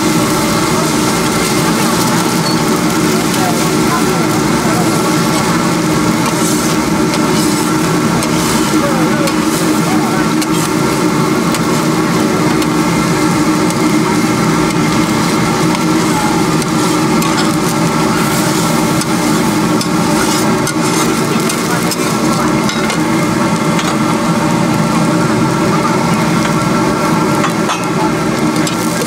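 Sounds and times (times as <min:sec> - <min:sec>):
rice sizzling in a wok: 0:00.0 - 0:29.0
steady hum: 0:00.0 - 0:29.0
metal spatula stirring: 0:04.3 - 0:09.8, 0:14.7 - 0:22.1.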